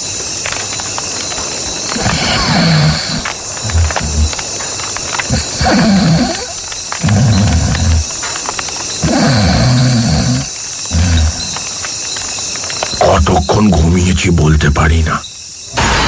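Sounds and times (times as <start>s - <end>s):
tiger growling: 1.6s - 14.0s.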